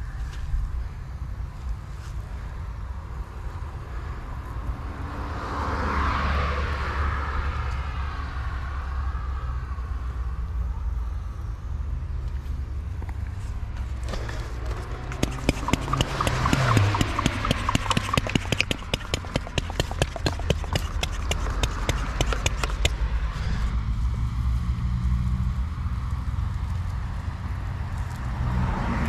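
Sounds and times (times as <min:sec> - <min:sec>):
low traffic rumble: 0:00.0 - 0:29.0
vehicle passing: 0:04.6 - 0:08.8, 0:13.4 - 0:29.0
rapid sharp clicks: 0:14.6 - 0:23.0.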